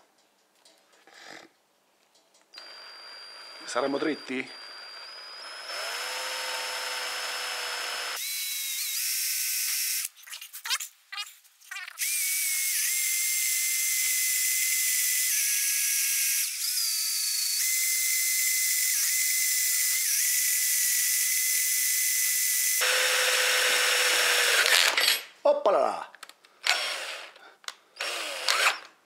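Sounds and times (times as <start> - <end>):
electric drill drilling metal: 2.6 - 10.1, 12.0 - 25.2, 26.6 - 27.4, 28.0 - 28.9.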